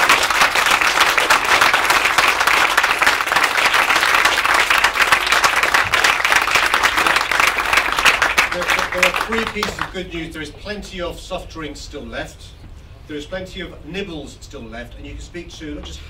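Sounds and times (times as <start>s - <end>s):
audience applauding: 0.0s - 10.0s.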